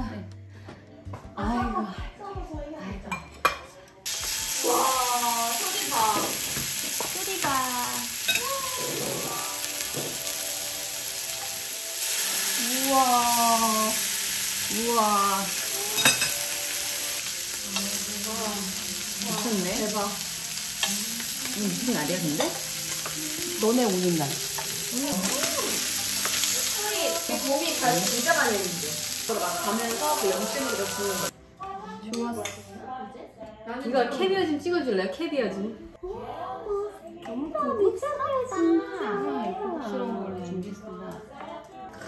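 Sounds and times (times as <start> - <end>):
steaks sizzling on a griddle: 4.1 - 31.3.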